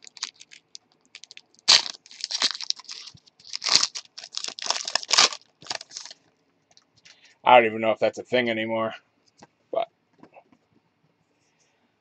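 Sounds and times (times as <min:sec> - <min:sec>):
foil wrapper crinkling and tearing: 0:00.0 - 0:06.2.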